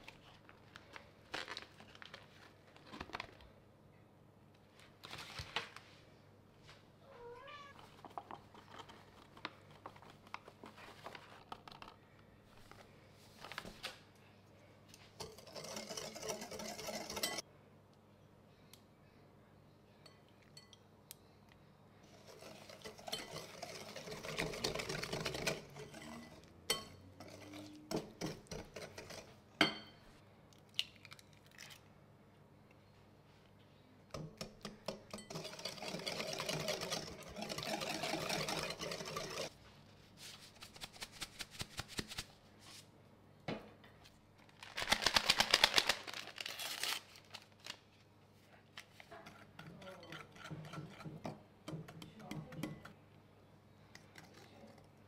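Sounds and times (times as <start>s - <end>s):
fork tapping bowl: 49.6s - 52.9s.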